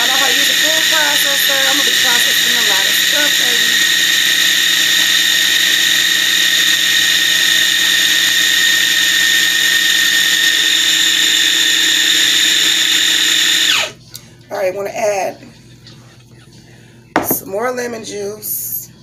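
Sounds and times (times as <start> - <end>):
food processor motor whining: 0.0 - 14.0.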